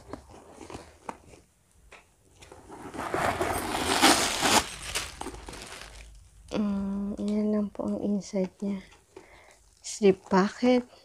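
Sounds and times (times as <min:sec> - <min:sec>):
loud rustling handling noise: 0:02.3 - 0:06.2.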